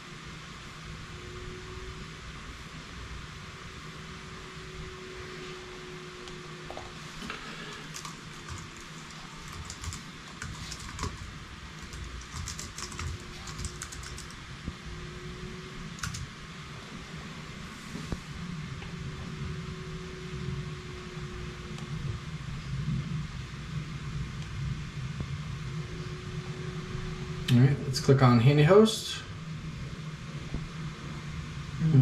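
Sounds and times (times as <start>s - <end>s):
steady background hiss: 0.0s - 32.0s
keyboard typing clicks: 7.8s - 14.3s, 16.0s - 16.2s.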